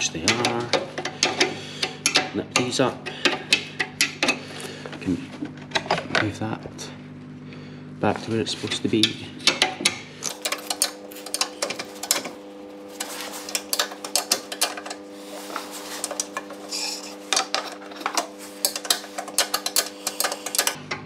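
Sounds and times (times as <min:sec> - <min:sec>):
hand tools clicking on metal: 0:00.0 - 0:04.4, 0:08.9 - 0:12.4, 0:13.0 - 0:20.8.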